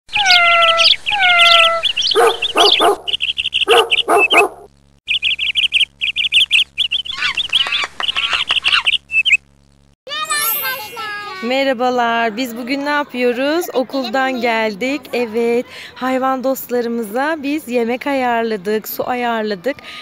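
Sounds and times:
birds chirping trills: 0.1s - 11.6s
dog barking: 2.1s - 4.7s.

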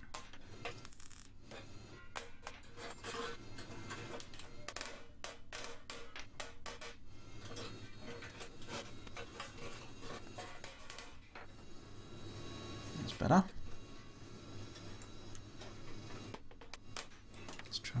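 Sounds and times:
welding crackle: 0.0s - 11.6s
hammer tapping sheet steel: 0.0s - 11.7s.

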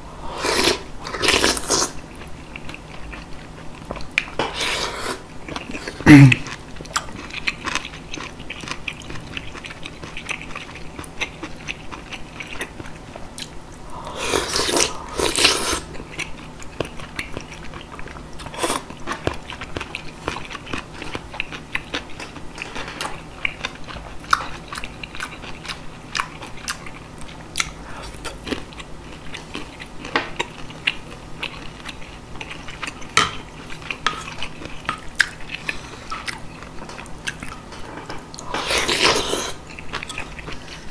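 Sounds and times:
close chewing with wet smacks: 5.5s - 13.6s, 15.4s - 22.8s, 23.4s - 37.6s.

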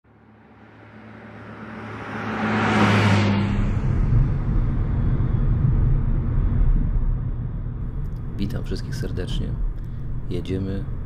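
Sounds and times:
whoosh: 0.3s - 8.4s
steady low hum: 3.2s - 11.0s.

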